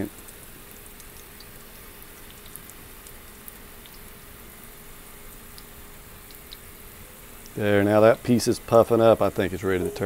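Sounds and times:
dough sizzling in oil: 0:00.0 - 0:09.8.

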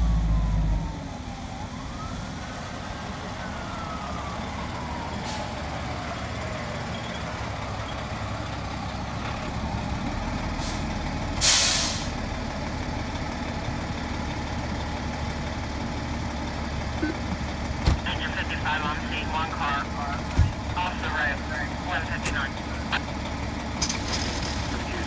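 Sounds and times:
siren winding down: 0:00.0 - 0:05.6
fire engine diesel engine running: 0:00.0 - 0:25.0
air-brake hisses: 0:11.4 - 0:12.1.

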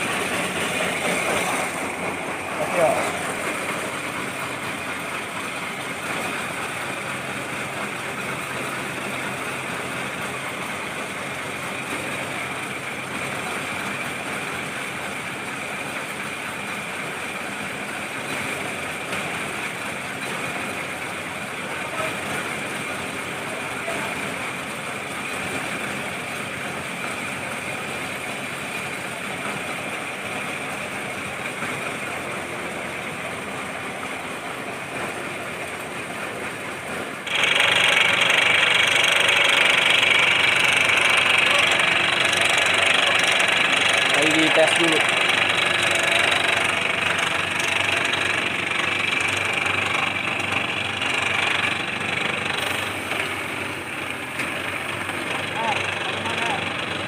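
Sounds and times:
machinery running steadily: 0:00.0 - 0:57.0
constant high whine: 0:37.2 - 0:57.0.

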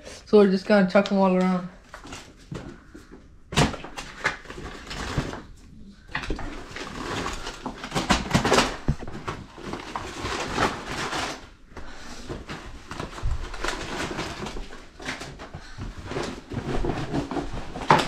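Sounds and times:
cards rustling and slapping: 0:01.3 - 0:18.0.

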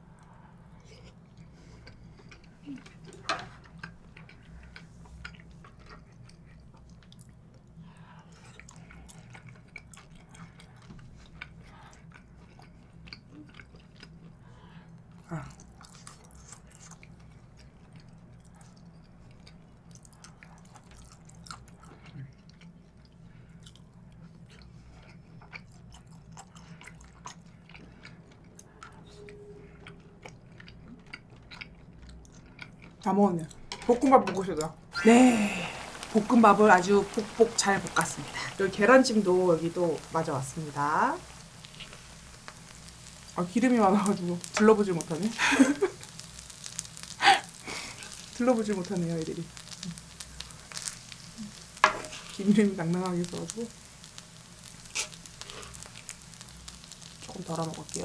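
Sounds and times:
close chewing: 0:00.1 - 0:33.6, 0:35.3 - 0:52.4
steady low hum: 0:34.7 - 0:58.0.

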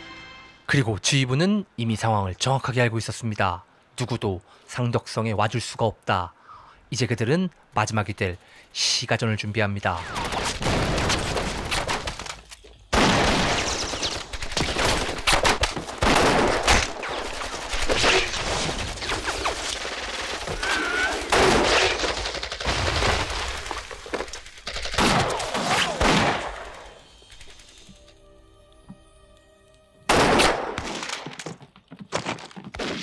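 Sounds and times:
rifle and machine-gun fire: 0:10.1 - 0:12.3, 0:12.9 - 0:27.5.

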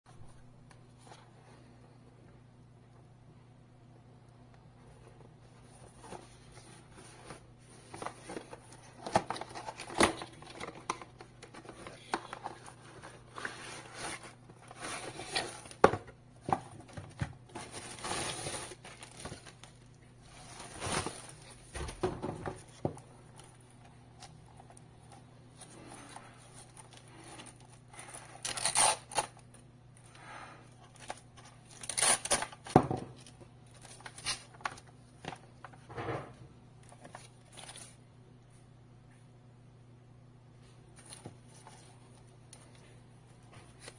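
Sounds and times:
cardboard and plastic rustling: 0:04.9 - 0:29.6, 0:30.7 - 0:38.0, 0:40.9 - 0:43.9.

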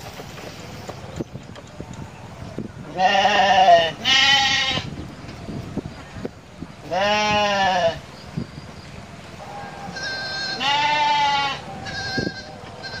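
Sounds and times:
goat bleating: 0:02.9 - 0:04.9, 0:06.8 - 0:08.0, 0:09.8 - 0:13.0.

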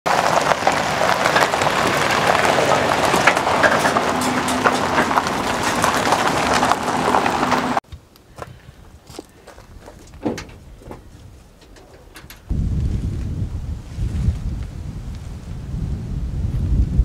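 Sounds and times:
trailer clicks and rattles: 0:00.1 - 0:07.8, 0:09.5 - 0:12.5
tyres crunching gravel: 0:00.1 - 0:12.9.

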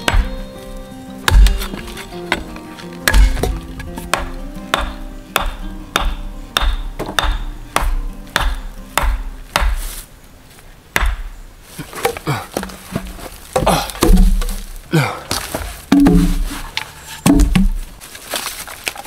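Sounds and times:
hatchet knocking on wooden stake: 0:04.1 - 0:09.8, 0:11.0 - 0:11.3.

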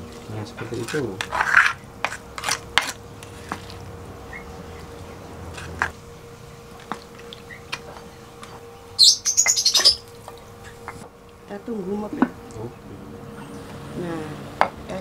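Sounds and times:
rough scrape on stone mortar: 0:00.7 - 0:03.8.

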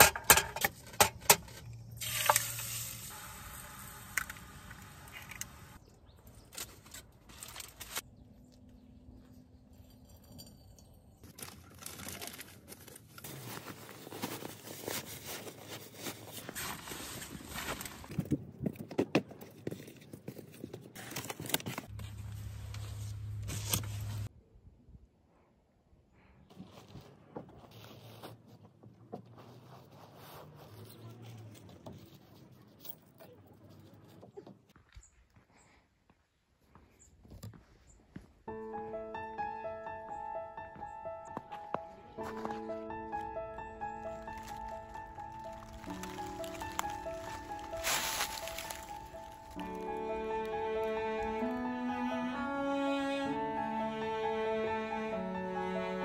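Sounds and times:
nylon bags rustling and crinkling: 0:11.3 - 0:18.2, 0:43.9 - 0:50.0.

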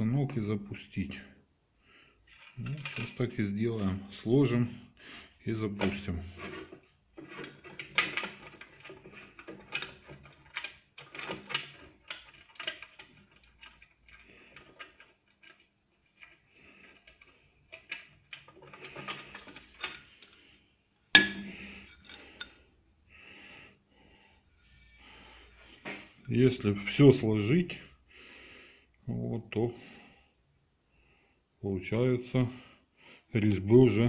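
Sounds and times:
metal parts clinking and knocking: 0:02.3 - 0:03.2, 0:05.8 - 0:20.5, 0:21.2 - 0:22.6.

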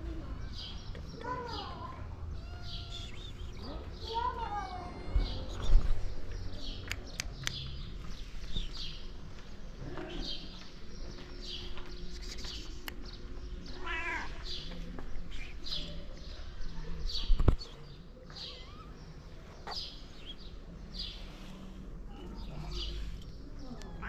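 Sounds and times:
kitten mewing: 0:02.4 - 0:03.5.

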